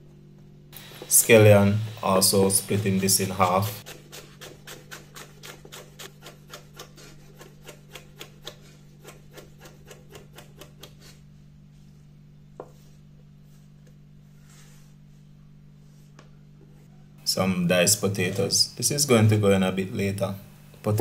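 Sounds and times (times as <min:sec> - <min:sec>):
knife chopping on wooden board: 0:03.8 - 0:11.0.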